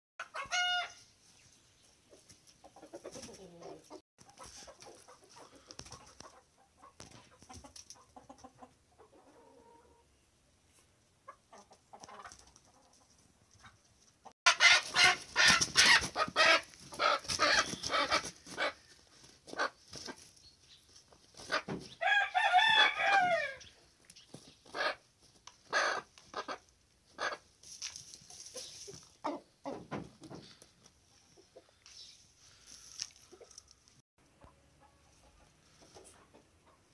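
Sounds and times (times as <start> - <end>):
chickens squawking: 0.2 - 1.1, 14.5 - 20.4, 21.3 - 27.5
chickens clucking: 0.2 - 10.2, 11.0 - 36.9
wings flapping: 14.8 - 18.6
rooster crowing: 22.0 - 23.6.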